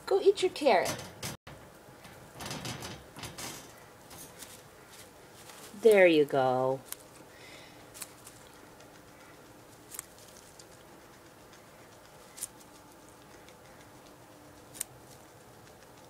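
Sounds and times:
guinea pig gnawing carrot: 0:06.7 - 0:16.0
sharp carrot crunches: 0:07.9 - 0:08.5.

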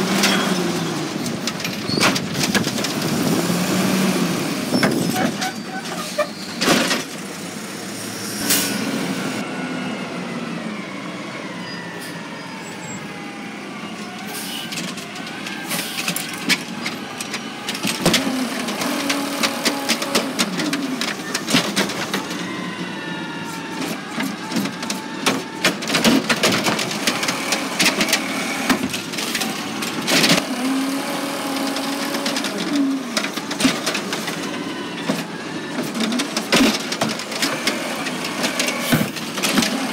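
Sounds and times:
truck engine and hydraulics whining: 0:00.0 - 0:39.9
bangs of carts and trash dropping: 0:04.7 - 0:07.2, 0:14.7 - 0:22.5, 0:23.7 - 0:30.9, 0:31.6 - 0:39.9.

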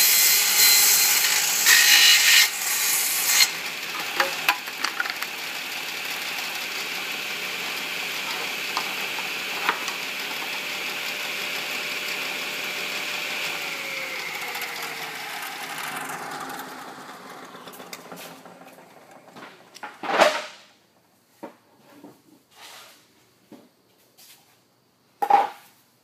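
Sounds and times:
table saw motor running: 0:00.0 - 0:20.0.

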